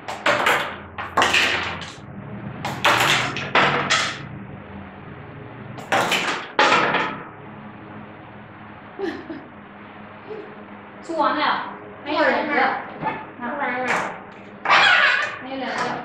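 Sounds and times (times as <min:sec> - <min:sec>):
plastic toys clattering on table: 0:00.1 - 0:02.0, 0:02.7 - 0:04.2, 0:05.8 - 0:07.2.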